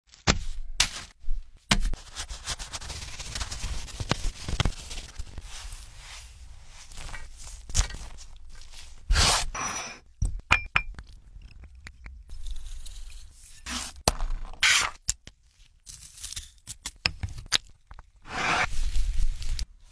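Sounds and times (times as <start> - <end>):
scraping in metal pan: 18.2 - 18.8.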